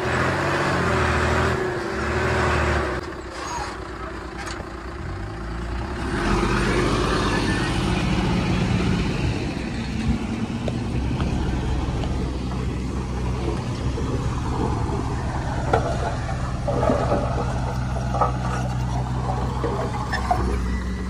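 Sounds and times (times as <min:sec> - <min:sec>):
bulldozer diesel engine running: 0:00.0 - 0:21.0
metal clanks and knocks: 0:09.9 - 0:21.0.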